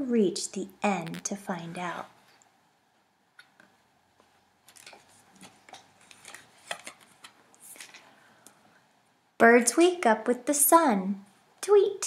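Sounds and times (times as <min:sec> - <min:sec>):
stiff card page turning: 0:04.7 - 0:08.0.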